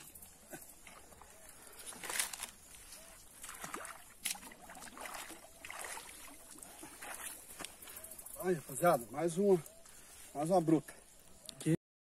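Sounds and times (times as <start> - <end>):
water splashing and sloshing: 0.0 - 8.0
wading steps in shallow water: 0.0 - 9.0.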